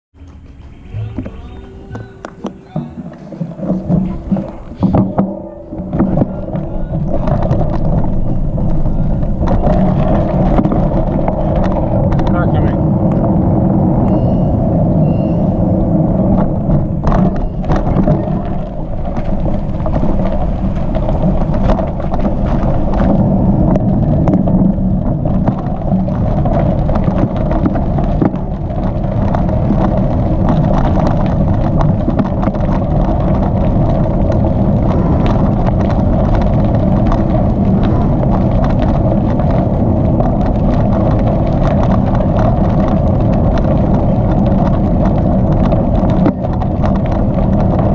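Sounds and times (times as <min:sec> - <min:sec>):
bicycle tyres rumbling on gravel: 0:00.2 - 0:47.9
small clicks and rattles: 0:15.5 - 0:47.9.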